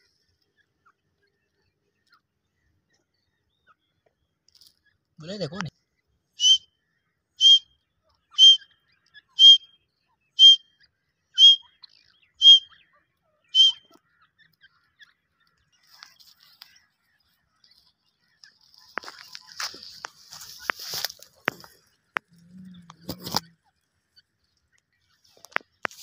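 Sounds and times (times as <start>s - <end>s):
bird calling sharp high notes: 6.4s - 6.7s, 7.4s - 7.7s, 8.3s - 8.7s, 9.3s - 9.8s, 10.4s - 10.7s, 11.4s - 11.7s, 12.3s - 12.8s, 13.5s - 13.9s
dry brush rustling and snapping: 18.5s - 22.3s, 25.3s - 26.0s.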